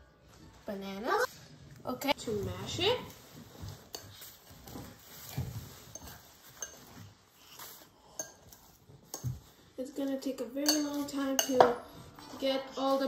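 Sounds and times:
fork mashing bananas: 3.5 - 9.7
fork clinking against bowl: 8.1 - 9.4, 10.6 - 11.8.

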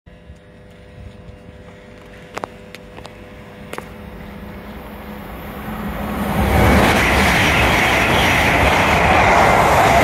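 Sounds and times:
steady hum: 0.1 - 7.1
train rumble approaching: 0.1 - 10.0.

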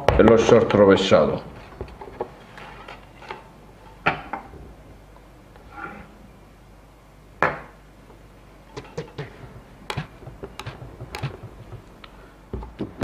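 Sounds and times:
knocks on wooden tabletop: 8.8 - 11.9.

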